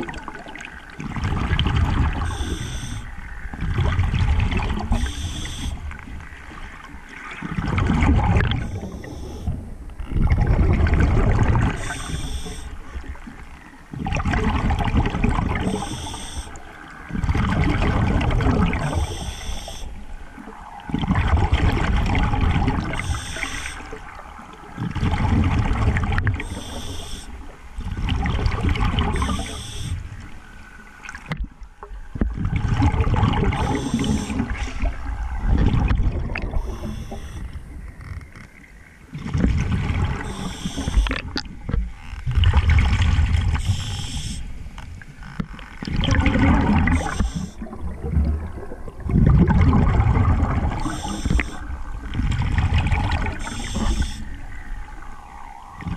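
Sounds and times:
exhaled bubbles rumbling underwater: 0:00.0 - 0:55.9
regulator hiss: 0:02.3 - 0:03.1, 0:04.9 - 0:05.8, 0:11.8 - 0:12.7, 0:15.8 - 0:16.6, 0:22.9 - 0:23.9, 0:29.2 - 0:30.0, 0:43.6 - 0:44.6, 0:47.0 - 0:47.6, 0:53.4 - 0:54.5.

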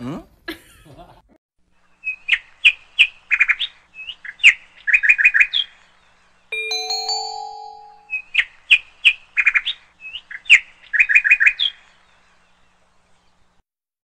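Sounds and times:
electronic chime: 0:06.6 - 0:08.2.

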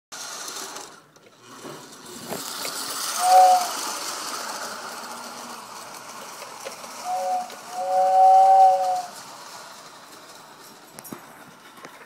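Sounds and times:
toy train rattling on track: 0:00.2 - 0:12.0
toy train whistle: 0:03.1 - 0:03.9, 0:07.0 - 0:09.2.

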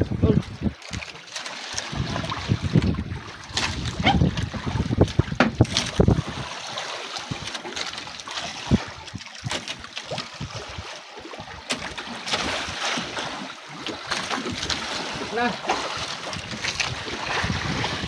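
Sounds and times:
water lapping against boat: 0:00.0 - 0:18.0
low bumps and knocks: 0:02.6 - 0:06.2.

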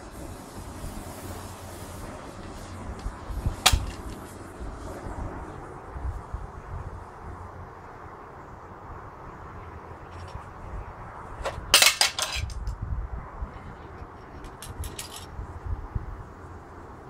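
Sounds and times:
steel pieces clinking: 0:11.7 - 0:12.7, 0:14.4 - 0:15.3.

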